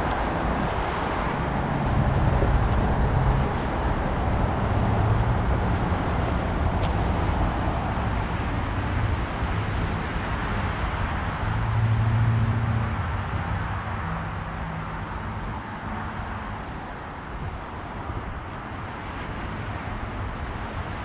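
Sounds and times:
low hum: 0:00.0 - 0:10.6
highway traffic rushing: 0:00.0 - 0:21.0.

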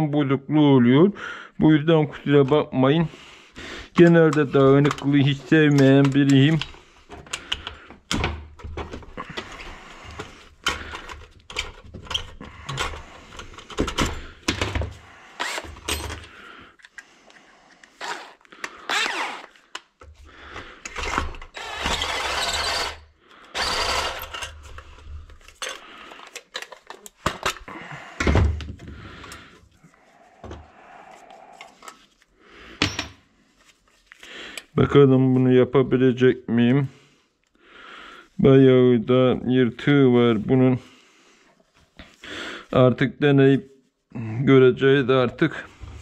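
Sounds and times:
cordless drill running: 0:15.4 - 0:15.9, 0:18.0 - 0:19.5, 0:20.9 - 0:24.6
metal tools clinking: 0:15.5 - 0:16.3, 0:25.5 - 0:27.1.

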